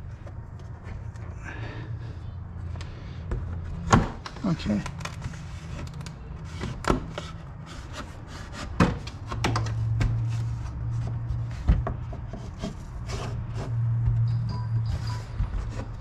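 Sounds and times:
knocks and clicks of trim panels: 8.8s - 10.2s.

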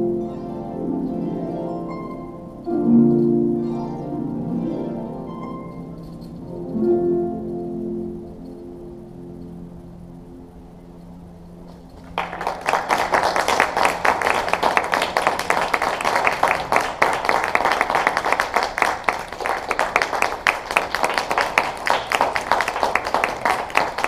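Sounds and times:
harp ensemble: 0.0s - 9.6s
audience applauding: 11.7s - 24.0s.

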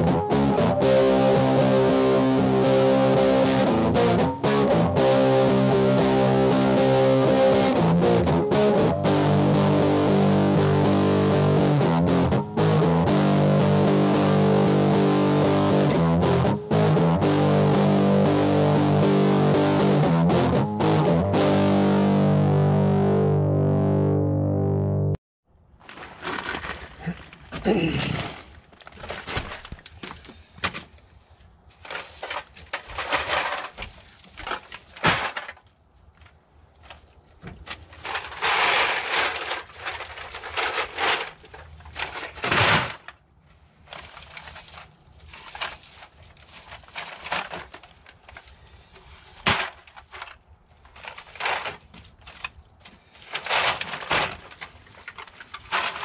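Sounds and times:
plastic bags rustling: 25.8s - 30.3s, 31.8s - 56.0s
aluminum cans clattering: 31.8s - 35.6s, 37.7s - 43.2s, 45.4s - 48.4s, 49.4s - 52.5s, 53.2s - 56.0s.

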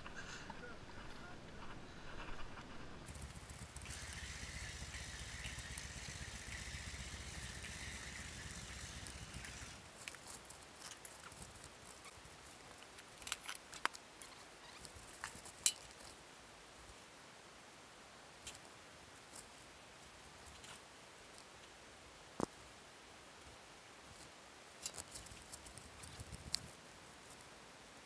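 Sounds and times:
rattling of gear: 3.1s - 12.1s.

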